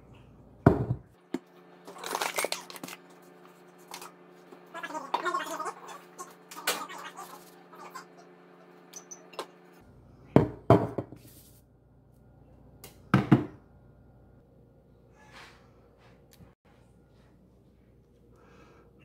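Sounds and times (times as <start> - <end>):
ceramic bowl knocking on countertop: 0.7 - 1.0, 10.4 - 11.2.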